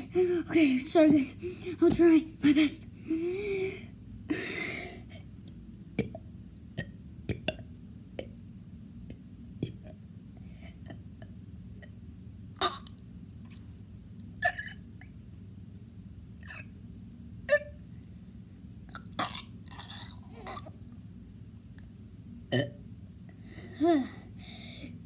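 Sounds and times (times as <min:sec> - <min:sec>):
person burping: 0:22.5 - 0:22.8
breathy exhale: 0:23.4 - 0:25.0.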